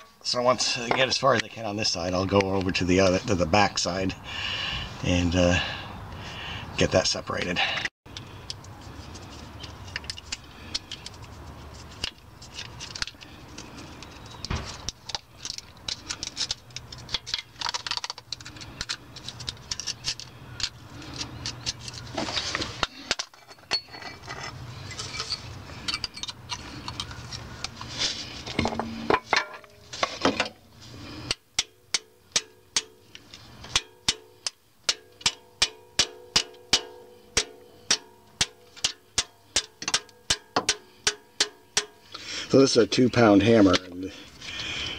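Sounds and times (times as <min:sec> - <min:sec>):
hammer striking metal tool: 0:33.7 - 0:42.0.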